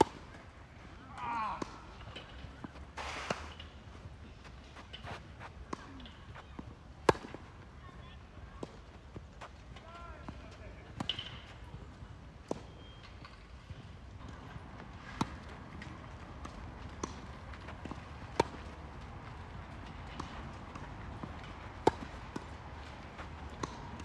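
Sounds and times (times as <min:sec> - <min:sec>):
ball bounces: 0:14.2 - 0:18.9, 0:19.7 - 0:24.0
tennis racket hitting ball: 0:15.0 - 0:18.7, 0:19.7 - 0:24.0.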